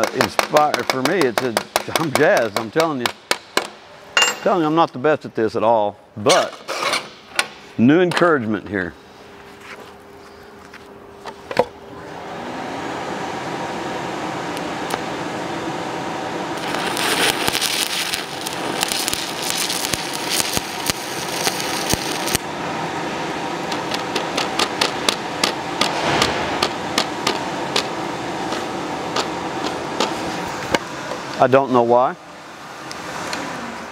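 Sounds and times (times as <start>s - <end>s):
welding arc crackling hiss: 16.4s - 31.8s
welding arc strike: 16.6s - 22.5s, 23.6s - 30.8s.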